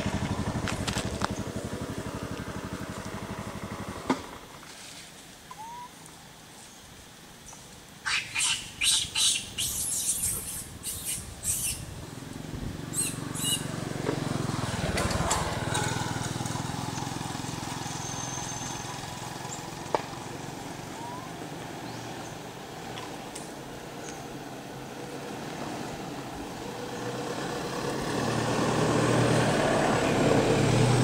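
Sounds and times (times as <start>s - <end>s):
vehicle passing by: 0.0s - 4.5s, 11.6s - 31.0s.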